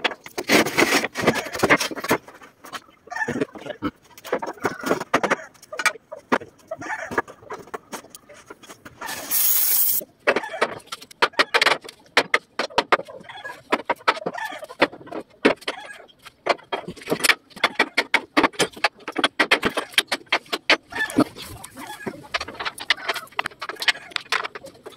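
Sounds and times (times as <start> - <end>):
burst of hissing: 9.1 - 10.0.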